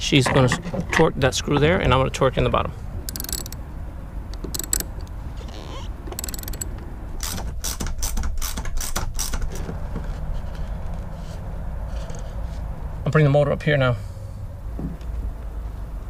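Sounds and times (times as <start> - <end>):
ratchet wrench clicking: 3.1 - 3.6, 4.4 - 5.1, 6.1 - 6.7.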